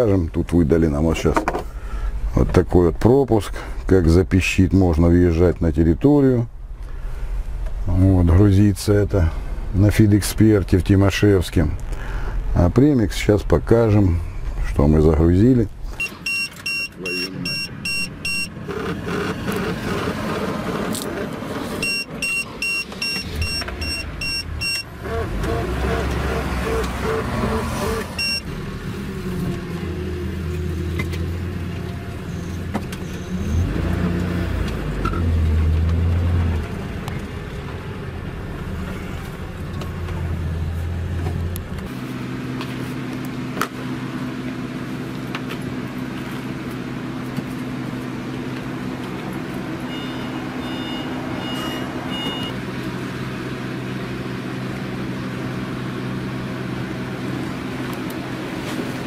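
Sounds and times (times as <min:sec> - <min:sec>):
vehicle engines idling: 0:00.0 - 0:59.0
short high beeps: 0:16.0 - 0:18.5, 0:21.8 - 0:24.9, 0:28.2 - 0:28.4, 0:49.9 - 0:52.6.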